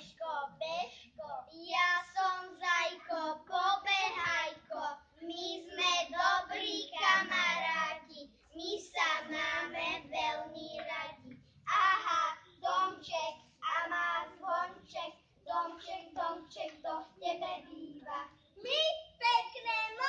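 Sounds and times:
young children singing: 0.0 - 0.3, 0.9 - 20.0.

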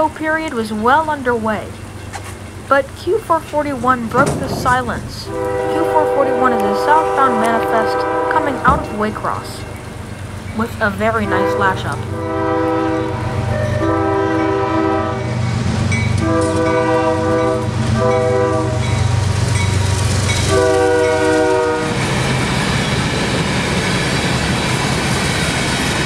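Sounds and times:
diesel locomotive rumble: 0.0 - 26.0
train wheels clattering on rail: 0.4 - 12.1, 15.4 - 26.0
locomotive horn blasts: 4.2 - 9.6, 11.0 - 15.5, 16.2 - 19.0, 20.5 - 22.0.

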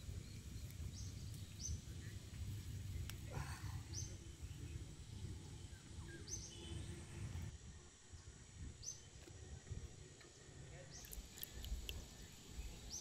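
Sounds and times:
bird chirping: 0.0 - 7.5
low steady rumble: 0.0 - 7.5.

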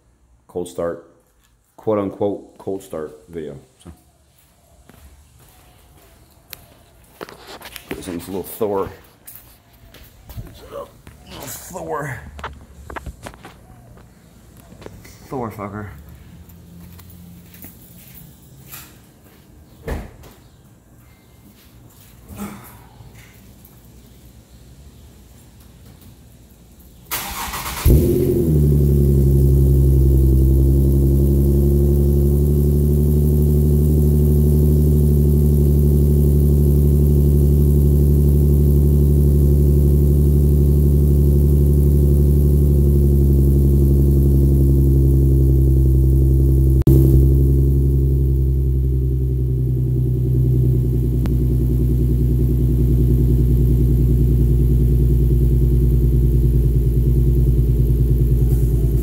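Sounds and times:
car engine starting: 27.0 - 59.0
car engine idling: 27.1 - 59.0.

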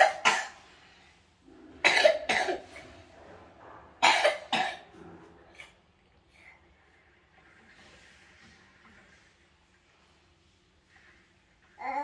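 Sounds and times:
person coughing: 0.0 - 0.6, 1.8 - 2.8, 4.0 - 4.9.

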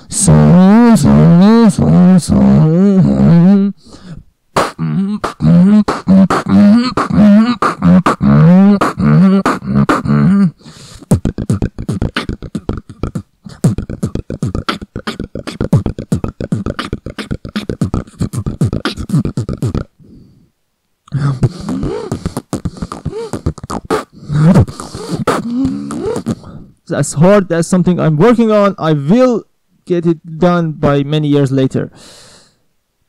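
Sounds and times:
beatboxing bass hums: 0.0 - 20.2, 21.1 - 26.7
clicking mouth and lip sounds: 4.6 - 10.4, 11.0 - 19.9, 20.8 - 26.5.

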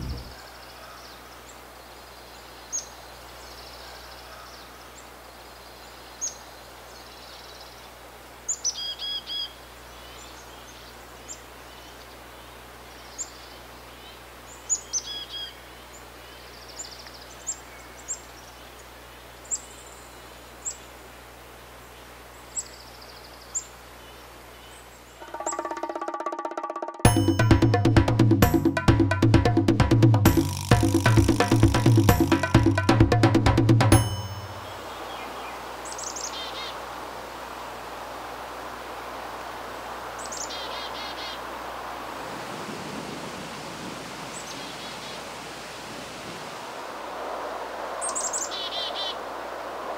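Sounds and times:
faint outdoor hiss: 0.0 - 49.9
chickadee calling: 25.2 - 26.8, 30.4 - 32.8, 34.0 - 36.9, 40.2 - 41.6, 48.0 - 49.2.

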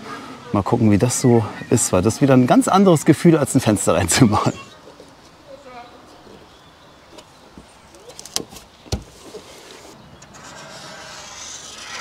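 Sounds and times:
paper rustling against metal: 8.0 - 12.0.

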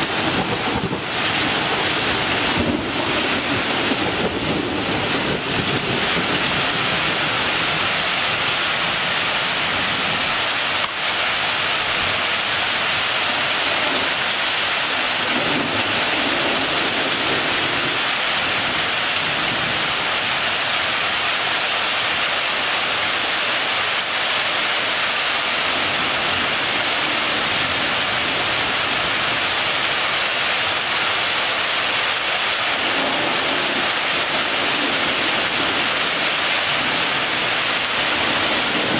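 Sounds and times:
rain falling steadily: 0.0 - 38.9.

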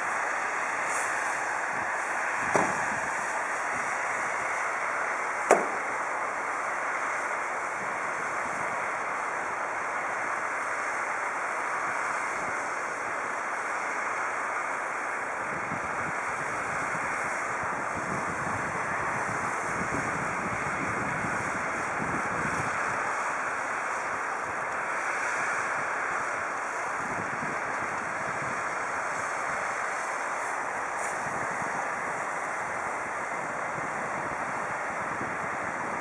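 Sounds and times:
steady rushing noise: 0.0 - 36.0
sharp knock: 5.5 - 5.8.

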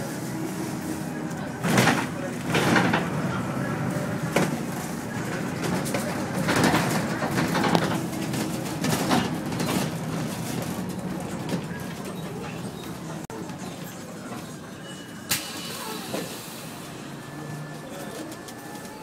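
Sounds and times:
vehicle road noise hum: 0.0 - 14.0.

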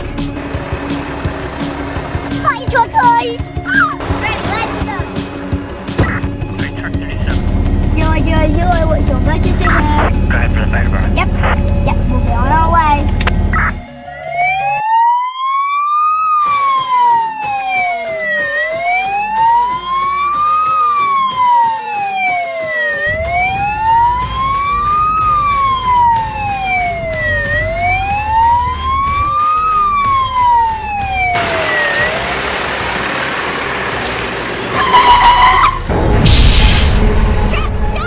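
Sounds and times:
truck engine running: 0.0 - 14.1, 23.1 - 38.0
fire truck siren wailing: 0.0 - 36.4.

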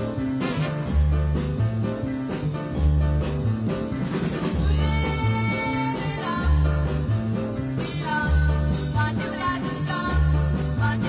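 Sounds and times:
repeating bass line: 0.0 - 3.9.

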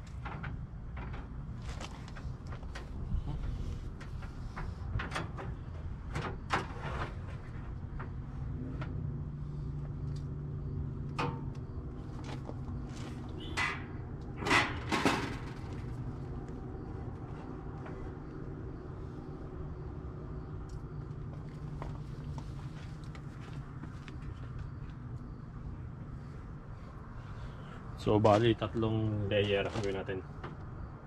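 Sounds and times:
metal rack clatter: 13.4 - 16.0.

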